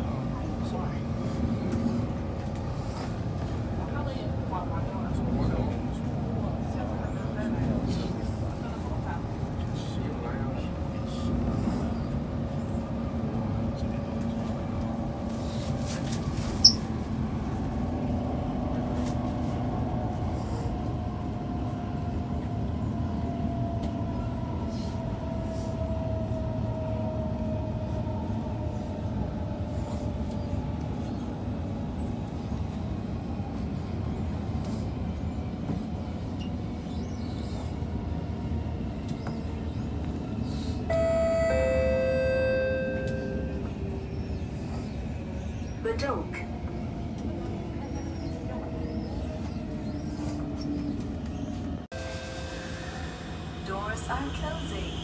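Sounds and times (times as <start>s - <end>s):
faint train whine: 0.0s - 55.0s
train rumbling: 0.0s - 55.0s
two-note descending chime: 40.9s - 43.6s.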